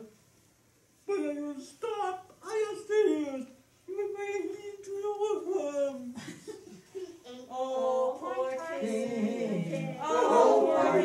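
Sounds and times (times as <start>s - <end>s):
group of voices singing: 7.6s - 11.0s.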